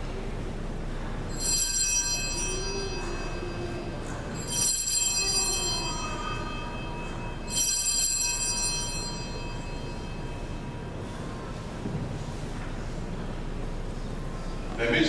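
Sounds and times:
hand-rung altar bells jangling: 0:01.3 - 0:10.5.

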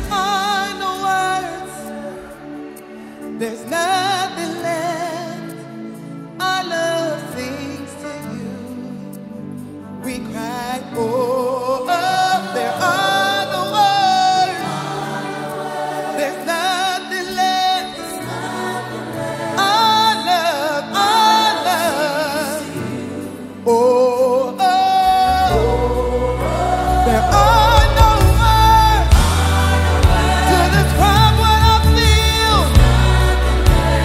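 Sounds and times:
backing singers: 0:11.5 - 0:34.0
band playing: 0:24.8 - 0:34.0
deep bass: 0:26.8 - 0:34.0.

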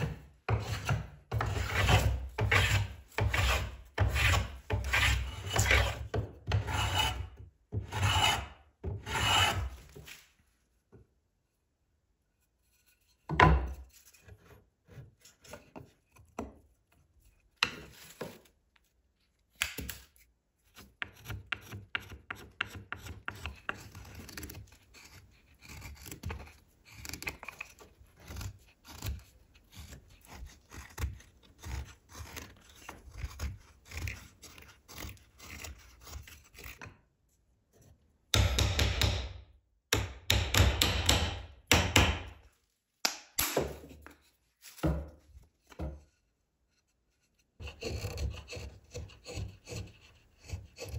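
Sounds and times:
hand plane shaving wood: 0:00.0 - 0:10.2, 0:21.0 - 0:37.0, 0:47.2 - 0:50.9
knife scraping wood: 0:00.0 - 0:10.4, 0:12.4 - 0:18.6, 0:19.6 - 0:38.0, 0:43.6 - 0:50.9.

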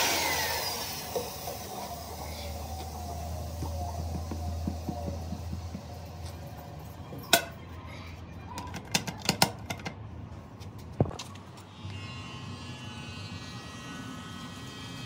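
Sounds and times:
low machine hum: 0:00.0 - 0:07.8.

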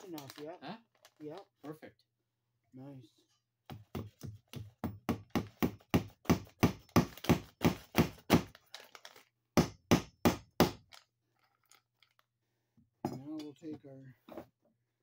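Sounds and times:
hammer striking staple into wood: 0:03.9 - 0:08.5, 0:09.6 - 0:10.8.

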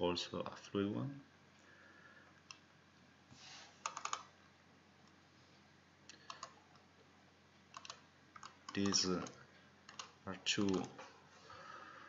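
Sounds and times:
computer mouse and keyboard clicking: 0:03.8 - 0:04.3, 0:06.1 - 0:06.9, 0:07.7 - 0:11.1.

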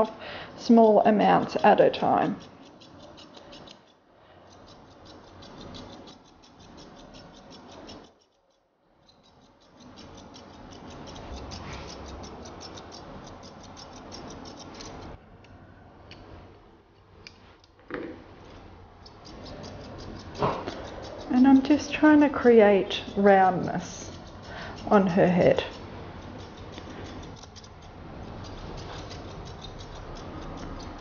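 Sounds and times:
scissors snipping hair: 0:09.1 - 0:15.0, 0:23.0 - 0:31.0.

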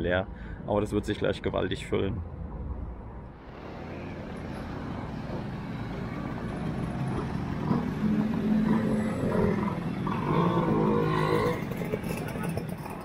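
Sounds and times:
scooters riding past: 0:03.7 - 0:13.0.

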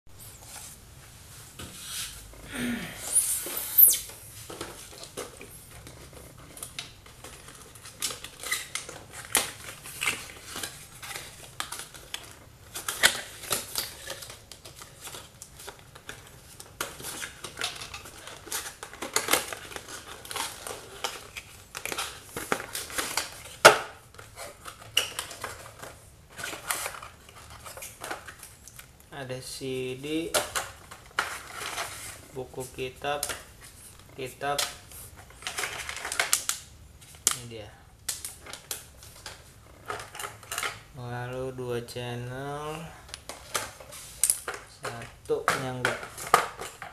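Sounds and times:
short squeak: 0:03.0 - 0:04.1.

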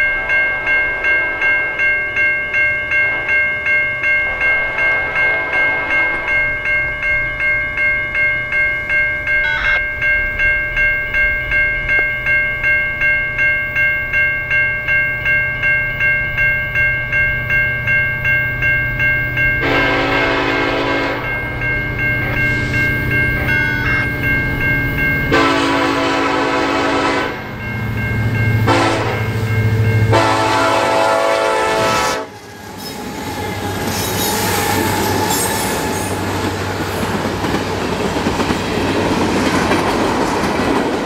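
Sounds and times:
train rumble: 0:00.0 - 0:13.4, 0:15.2 - 0:41.0
crossing bell ringing: 0:00.0 - 0:41.0
locomotive horn: 0:09.4 - 0:09.8, 0:19.6 - 0:21.3, 0:25.3 - 0:27.5, 0:28.6 - 0:29.3, 0:30.1 - 0:32.5.

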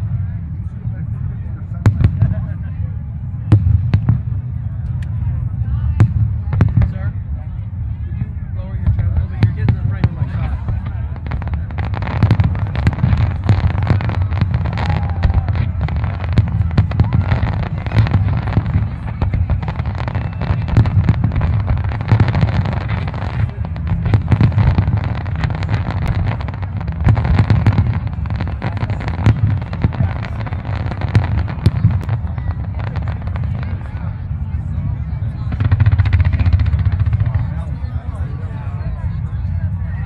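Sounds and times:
deep rumble: 0:00.0 - 0:40.0
fireworks cracks and bangs: 0:08.2 - 0:38.7.

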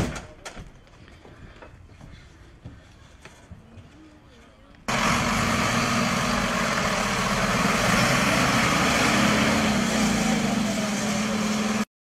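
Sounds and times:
diesel truck engine running: 0:04.9 - 0:11.9.

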